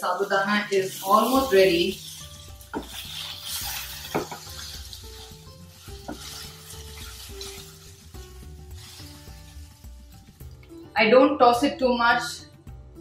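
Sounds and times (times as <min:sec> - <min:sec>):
light sizzle: 0:00.0 - 0:10.9
wooden spatula scraping a pan: 0:00.1 - 0:10.4.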